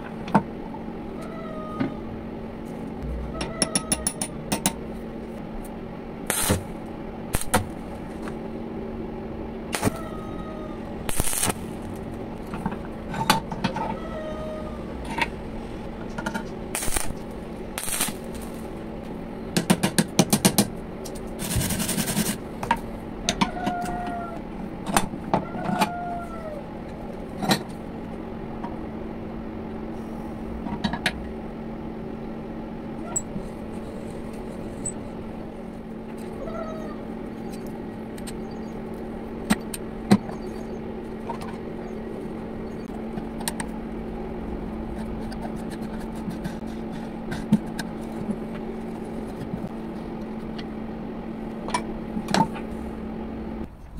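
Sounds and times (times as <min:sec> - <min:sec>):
steady low hum: 0:00.0 - 0:53.9
metal tools knocking on iron: 0:03.3 - 0:04.8.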